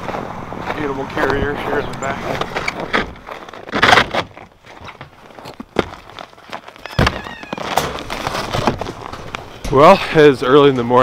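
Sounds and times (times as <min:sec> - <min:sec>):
footsteps crunching on snow: 0:00.0 - 0:10.0
loud rustle: 0:06.0 - 0:10.0.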